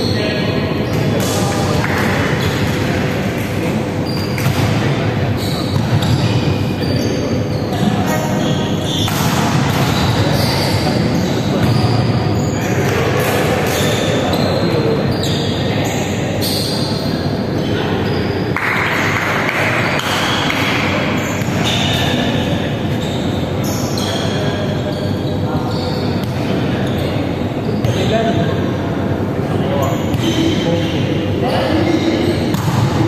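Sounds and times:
shoes squeaking on wooden court: 4.0 - 13.1, 13.7 - 18.5, 21.2 - 28.1, 29.8 - 31.0.

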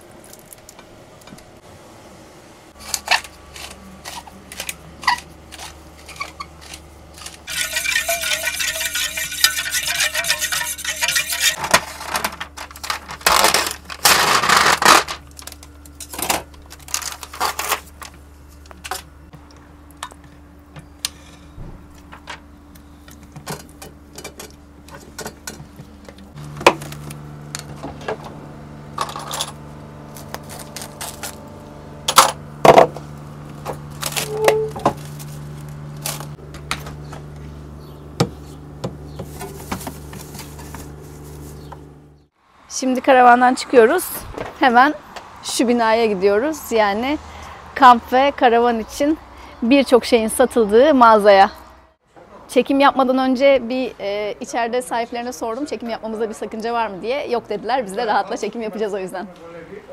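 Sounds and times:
plastic packaging crinkling: 33.9 - 34.4, 35.0 - 36.4.

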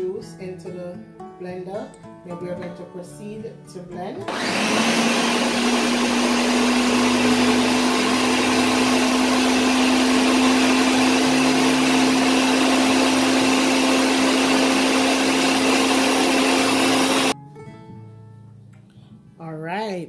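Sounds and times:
blender motor whining: 4.3 - 17.4.

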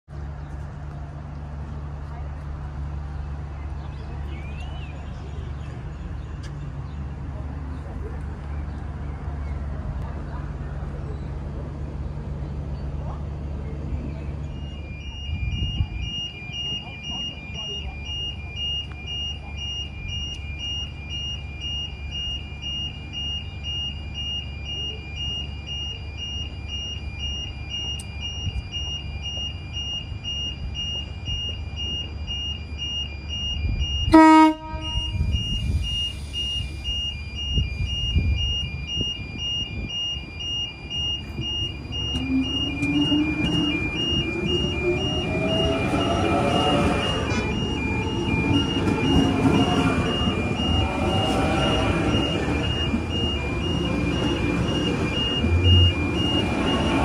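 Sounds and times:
two-tone warning beeps: 13.7 - 57.0
train horn toot: 34.1 - 35.4
train motors whining: 40.4 - 57.0.

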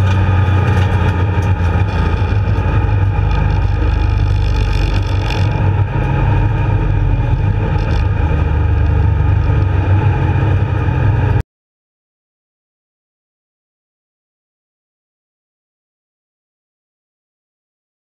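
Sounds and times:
race car engine rumbling: 0.0 - 11.4.

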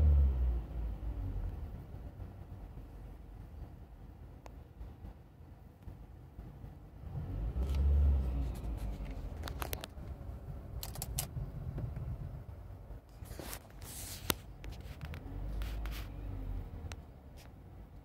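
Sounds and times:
sharp clicks and handling noises: 7.6 - 10.2, 10.8 - 12.1, 13.1 - 16.2.

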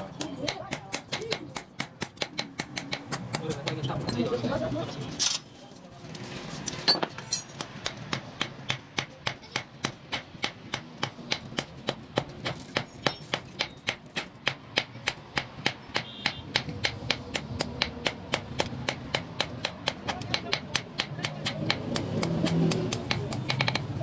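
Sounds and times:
hammer striking hot metal on anvil: 7.6 - 23.9.

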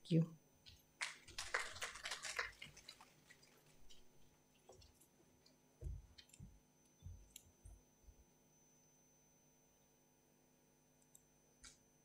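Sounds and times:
soft low thumps: 5.8 - 7.8.

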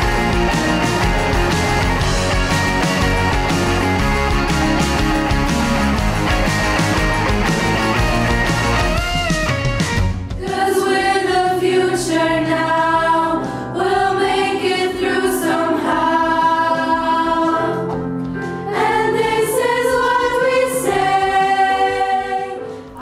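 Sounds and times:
choir of girls singing: 10.4 - 23.0.

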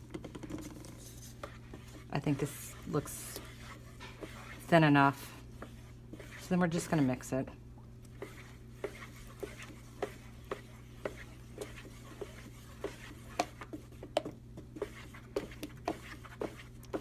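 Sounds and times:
stick tapping plastic bucket: 0.0 - 1.5
low steady hum: 0.0 - 17.0
stick mixing paint in bucket: 0.0 - 17.0.

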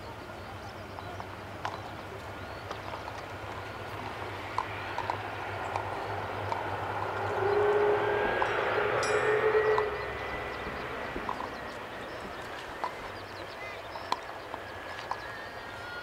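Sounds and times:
jet engines whine and rumble: 0.0 - 16.0
jet engines spooling up: 3.5 - 16.0.

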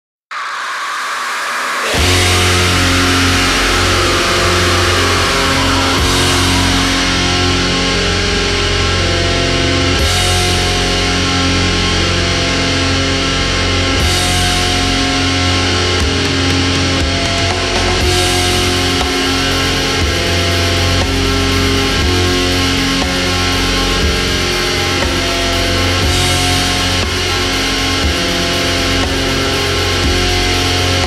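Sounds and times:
hiss of noise: 0.3 - 8.8
distorted guitars and bass: 0.3 - 31.0.

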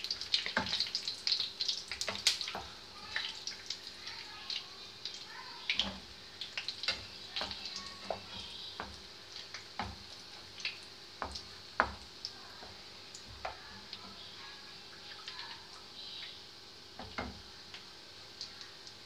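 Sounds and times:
dough sizzling in oil: 0.0 - 19.0
wooden spatula tapping pan: 6.9 - 10.1, 11.2 - 14.2.

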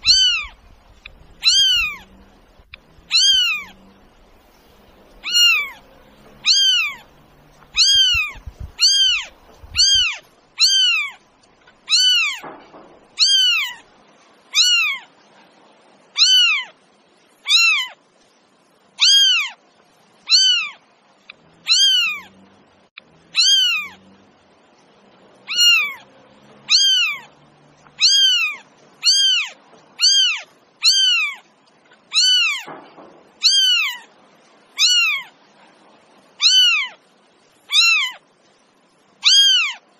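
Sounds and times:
cat meowing: 0.0 - 4.4, 5.1 - 11.2, 11.9 - 12.5, 13.2 - 13.8, 14.5 - 15.1, 16.2 - 16.8, 17.4 - 18.0, 19.0 - 19.6, 20.3 - 20.8, 21.6 - 22.3, 23.3 - 24.0, 25.5 - 27.3, 27.9 - 31.4, 32.1 - 32.7, 33.4 - 34.1, 34.8 - 35.4, 36.4 - 37.0, 37.7 - 38.2, 39.2 - 39.8.

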